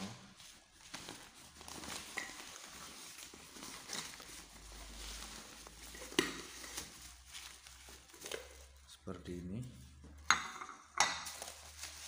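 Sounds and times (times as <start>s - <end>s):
fabric bag rustling: 0.0s - 8.9s, 11.2s - 12.0s.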